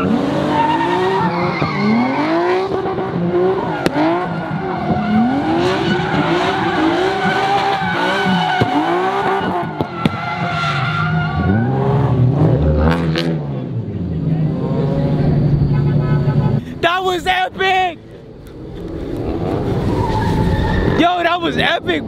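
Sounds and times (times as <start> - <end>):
tyres squealing and skidding: 0.0 - 12.2, 19.0 - 22.0
car engine revving: 0.0 - 16.6.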